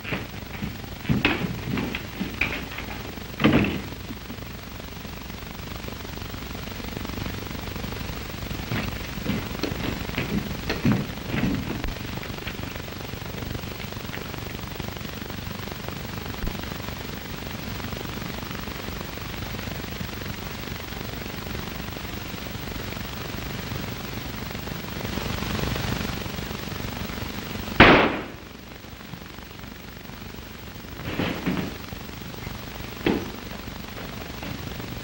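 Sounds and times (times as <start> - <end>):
film soundtrack hiss: 0.0 - 35.0
loud gunshot: 27.8 - 28.5.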